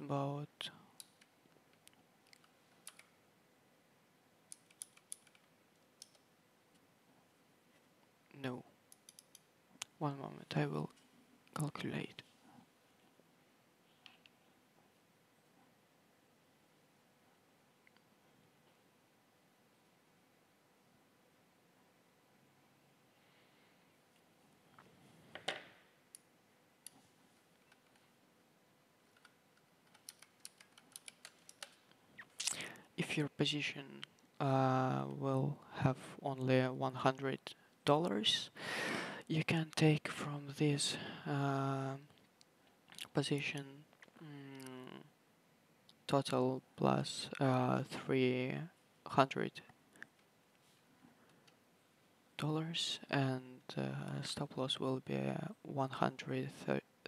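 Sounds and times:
computer keyboard clicks: 0:04.5 - 0:06.2, 0:29.2 - 0:31.8.

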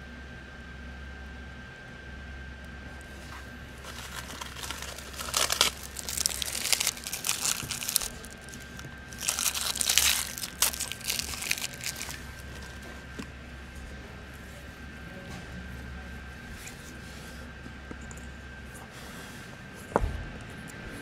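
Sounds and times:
plastic packet crinkling: 0:03.7 - 0:12.9.

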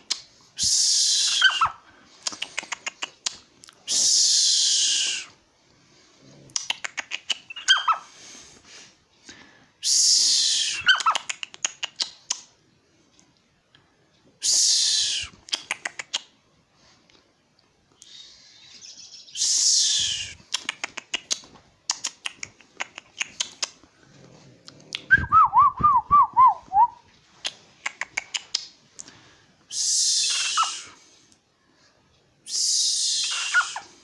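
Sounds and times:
owl screech calls: 0:01.0 - 0:01.8, 0:29.8 - 0:31.0, 0:32.5 - 0:34.0.

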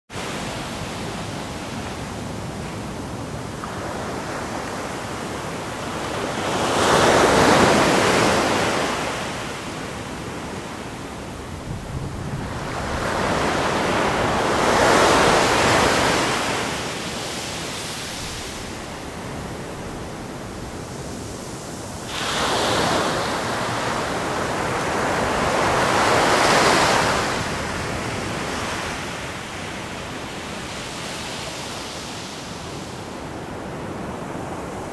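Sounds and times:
waves breaking on beach: 0:00.2 - 0:34.9
sea hiss: 0:21.7 - 0:23.6.

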